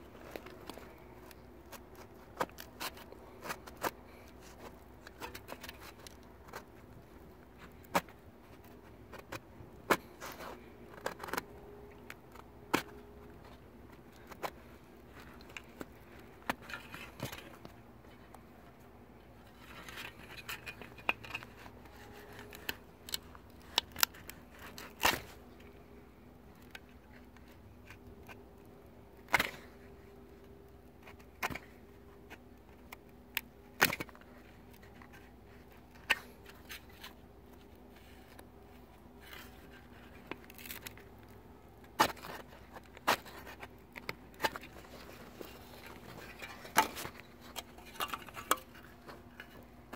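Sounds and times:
metal scraping leather boot: 35.9 - 49.9.

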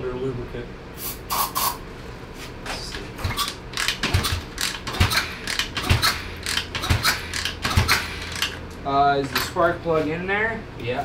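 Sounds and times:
aerosol can spraying: 1.0 - 1.8.

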